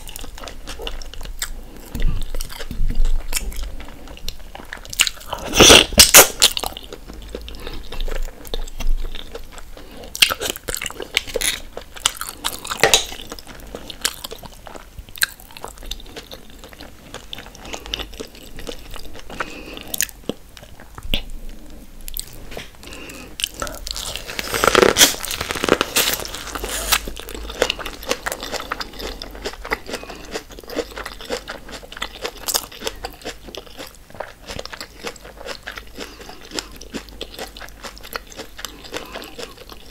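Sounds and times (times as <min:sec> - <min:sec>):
wet chewing: 0:00.0 - 0:39.9
crunching bites: 0:23.1 - 0:39.9.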